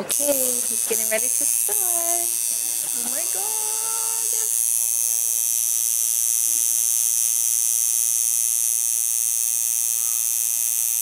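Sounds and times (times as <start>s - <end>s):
tattoo machine buzzing: 0.0s - 11.0s.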